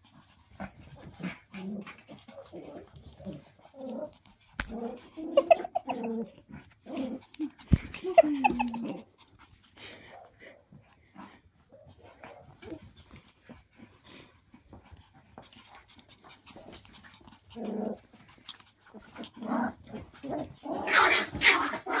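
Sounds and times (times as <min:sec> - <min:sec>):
puppies panting and growling: 0:00.0 - 0:22.0
paws clicking on wooden floor: 0:06.7 - 0:22.0.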